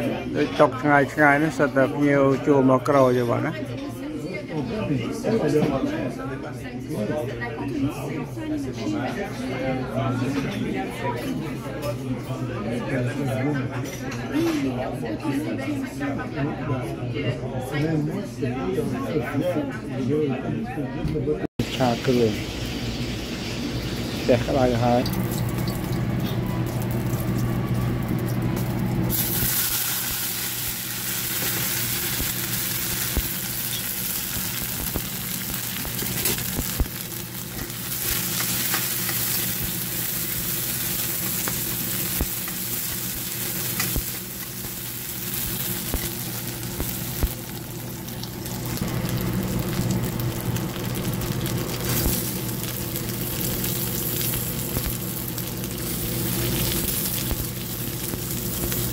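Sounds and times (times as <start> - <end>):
paste sizzling in hot oil: 21.6 - 58.9.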